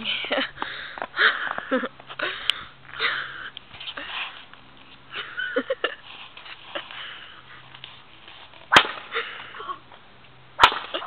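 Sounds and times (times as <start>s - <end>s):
sharp crack: 8.7s - 9.6s, 10.6s - 11.0s.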